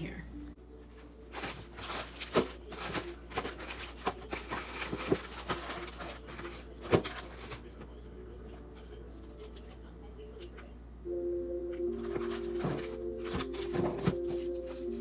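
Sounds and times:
plastic packages rustling and crinkling: 0:01.3 - 0:08.0, 0:12.0 - 0:15.0.

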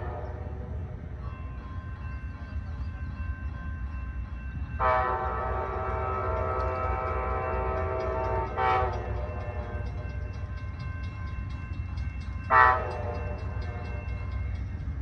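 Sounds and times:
distant locomotive air horn: 0:04.8 - 0:09.9, 0:12.5 - 0:13.8.

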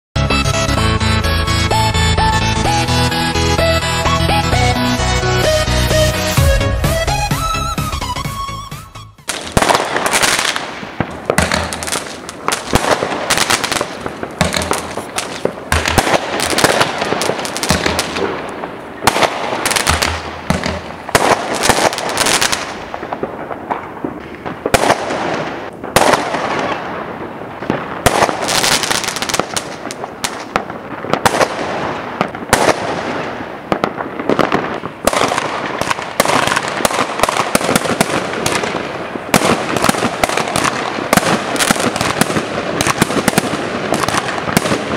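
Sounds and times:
fireworks bangs and pops: 0:09.2 - 0:44.9.

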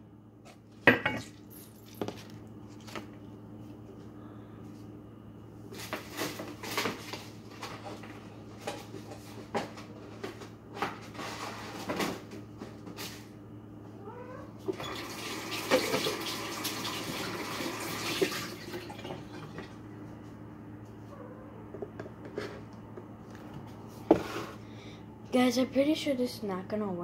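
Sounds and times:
tap running into sink: 0:14.8 - 0:17.4.

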